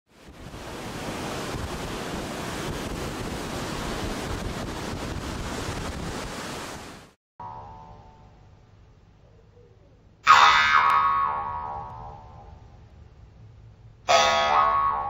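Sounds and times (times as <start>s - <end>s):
ocean waves washing: 0.1s - 7.2s.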